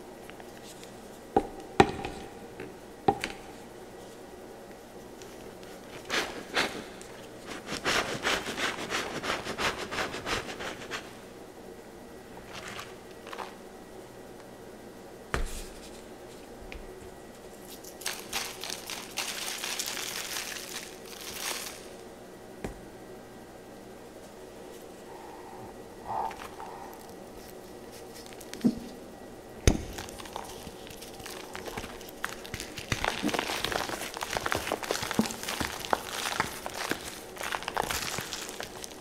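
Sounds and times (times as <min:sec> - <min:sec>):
shaker bottles puffing and rattling: 0:17.8 - 0:22.0, 0:30.0 - 0:39.0.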